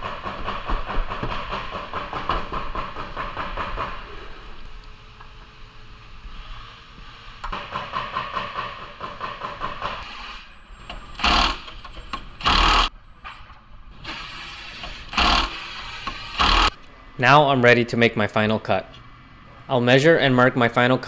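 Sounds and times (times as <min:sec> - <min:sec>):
impact wrench hammering: 0:14.8 - 0:16.8.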